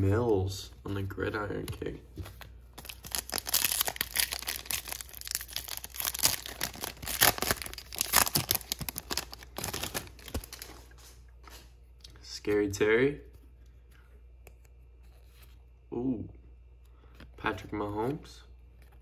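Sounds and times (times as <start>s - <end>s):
foil wrapper tearing and crinkling: 2.8s - 10.9s.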